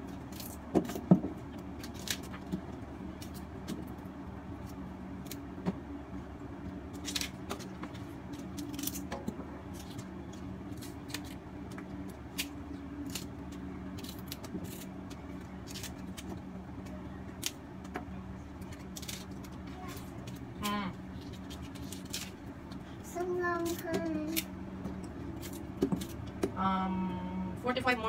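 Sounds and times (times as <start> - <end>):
steady low hum: 0.0 - 28.0
stems snapping: 1.8 - 2.6, 8.3 - 18.0, 18.6 - 19.6, 20.2 - 22.4.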